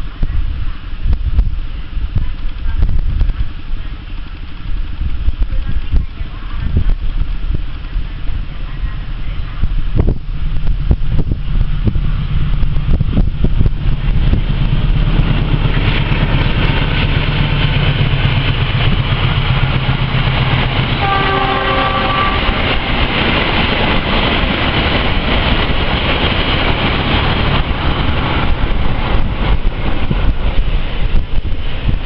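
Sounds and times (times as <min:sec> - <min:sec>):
train rumbling on rails: 0:00.0 - 0:32.0
train horn: 0:20.9 - 0:22.7.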